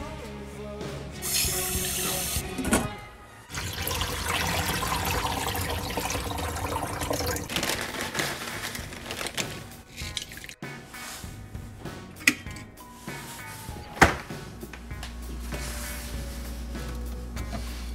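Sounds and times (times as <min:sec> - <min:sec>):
music playing: 0:00.0 - 0:17.9
rice rinsed by hand in water: 0:03.5 - 0:07.5.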